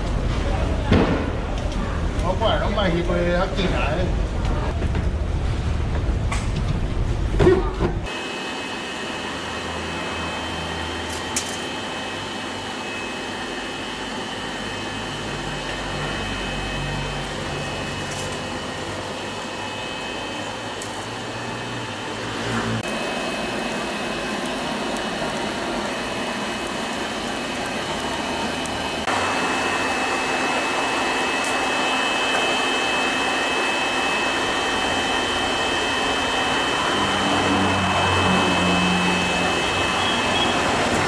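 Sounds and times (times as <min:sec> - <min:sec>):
forge air blower whirring: 0:00.0 - 0:41.0
faint high whine: 0:08.1 - 0:22.2, 0:22.9 - 0:40.7.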